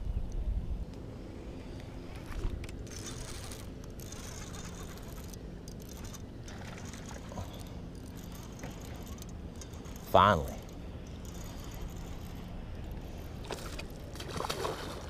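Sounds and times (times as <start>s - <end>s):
low background rumble: 0.0s - 15.0s
fishing reel clicks: 2.7s - 14.0s.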